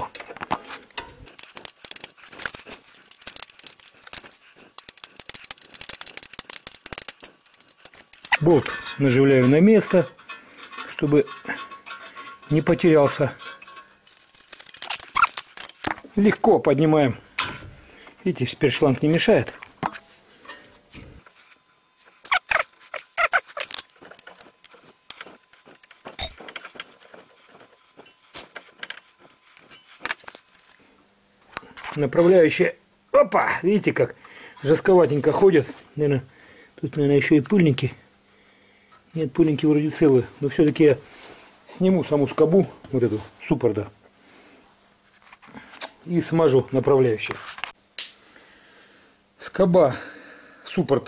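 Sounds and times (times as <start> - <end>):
spanner clicking and scraping: 1.2 - 8.4, 13.6 - 15.9, 22.1 - 30.8
sharp metallic clink: 26.1 - 26.8.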